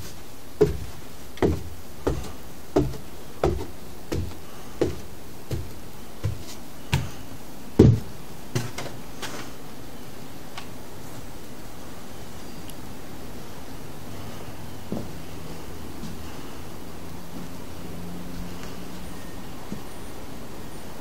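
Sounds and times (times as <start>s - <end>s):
footsteps on wooden stairs: 0.0s - 7.2s, 7.8s - 9.0s, 14.9s - 15.2s.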